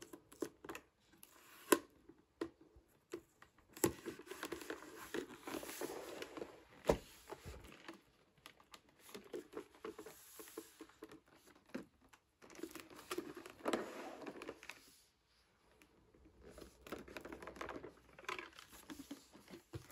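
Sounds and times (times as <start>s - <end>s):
cardboard rustling and scraping: 3.8s - 8.1s, 12.5s - 15.0s, 16.5s - 19.9s.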